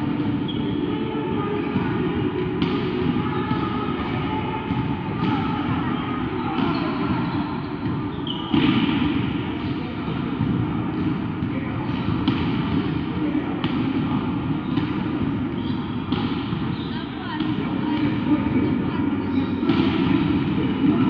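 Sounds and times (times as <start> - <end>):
murmur of voices: 0.0 - 21.0
volleyball being struck: 7.8 - 16.8.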